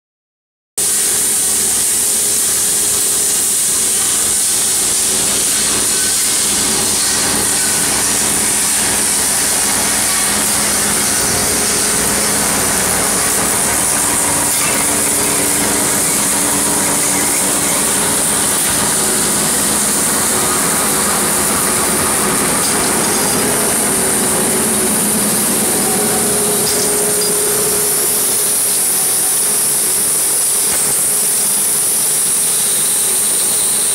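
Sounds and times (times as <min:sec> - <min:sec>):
high-pitched machine hiss: 0:00.8 - 0:33.9
low machine hum: 0:02.0 - 0:31.9.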